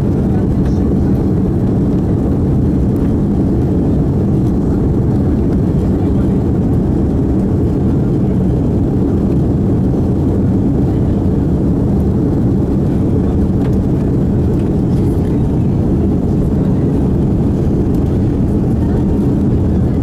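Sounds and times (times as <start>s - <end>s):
airplane cabin rumble: 0.0s - 20.0s.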